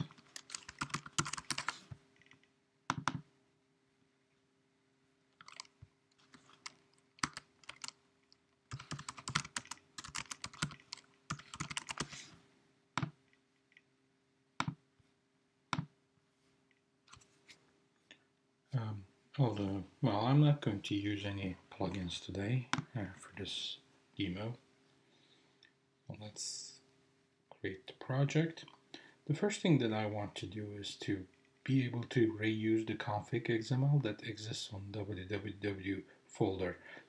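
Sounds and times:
typing on computer keyboard: 0.0s - 1.7s, 5.4s - 8.0s, 8.7s - 12.1s
keyboard clicks: 0.0s - 3.2s, 5.4s - 8.0s, 8.7s - 12.1s, 14.6s - 14.8s
faint steady hum: 0.0s - 37.0s.

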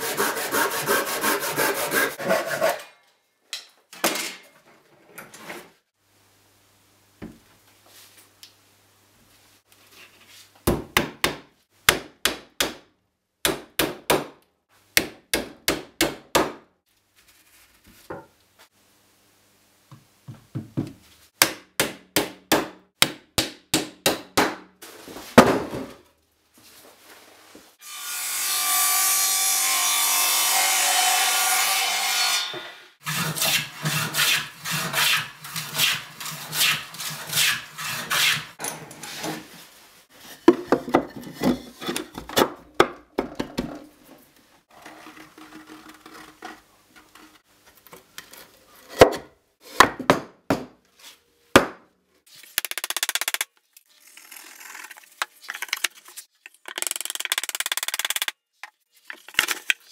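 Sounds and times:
hand plane strokes on wood: 0.0s - 2.8s.

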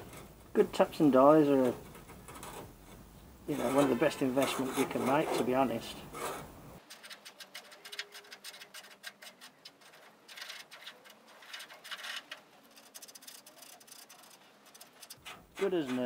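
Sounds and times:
die clicking and scraping on thread: 1.6s - 16.0s.

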